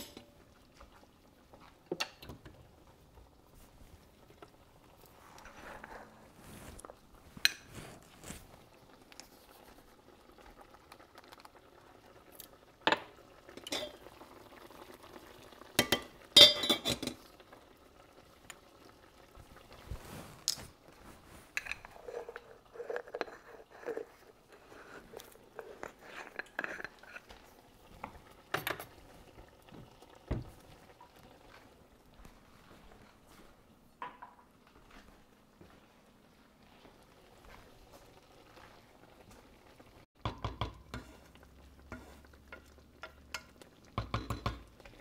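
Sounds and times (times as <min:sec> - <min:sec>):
utensils clinking against pots: 0:00.0 - 0:00.3, 0:12.8 - 0:14.1, 0:15.8 - 0:17.2, 0:21.5 - 0:24.1, 0:25.5 - 0:27.3, 0:28.5 - 0:29.0, 0:40.2 - 0:44.7.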